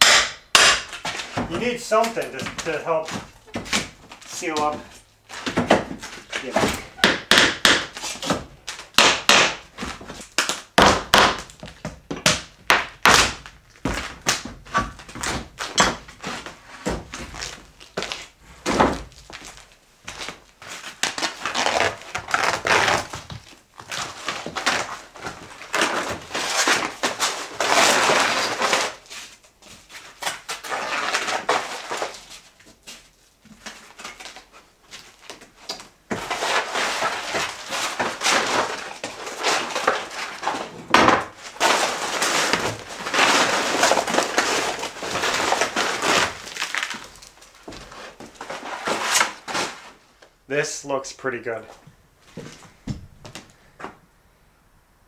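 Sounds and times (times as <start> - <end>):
covering torn off floorboards: 0.9 - 29.3, 30.0 - 32.6, 33.6 - 50.0.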